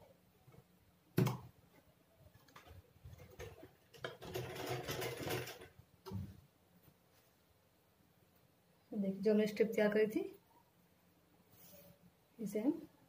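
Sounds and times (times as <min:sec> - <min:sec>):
sewing machine stitching: 0:03.2 - 0:05.7.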